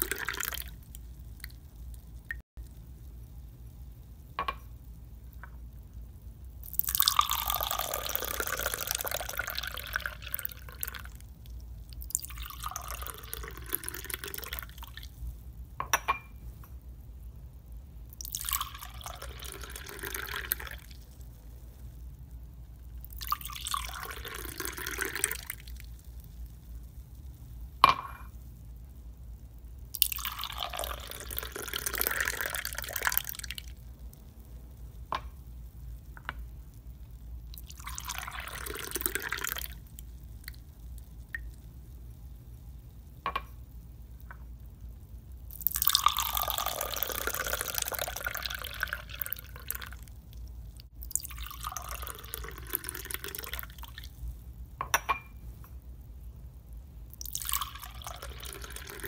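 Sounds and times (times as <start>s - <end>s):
liquid pouring into wine glass: 0.0s - 0.7s, 6.6s - 11.1s, 12.0s - 15.0s, 18.2s - 20.9s, 23.1s - 25.7s, 30.0s - 33.6s, 37.6s - 39.7s, 45.5s - 50.0s, 51.1s - 54.0s, 57.2s - 59.0s
low steady hum: 0.0s - 59.0s.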